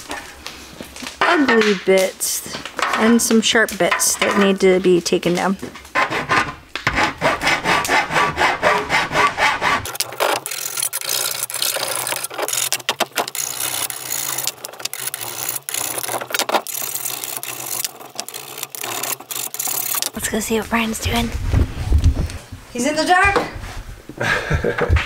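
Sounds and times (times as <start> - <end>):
hand file rasping on copper: 6.0 - 20.2.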